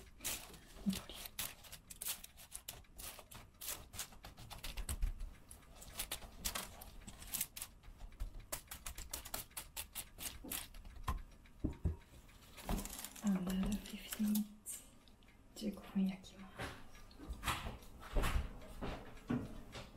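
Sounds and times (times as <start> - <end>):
dry ingredients clicking and rattling: 0.0 - 14.8.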